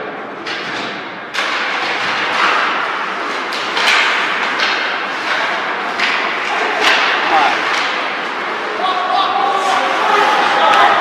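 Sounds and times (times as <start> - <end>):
sticks and puck knocking: 0.4 - 8.5
skates scraping ice: 1.3 - 11.0.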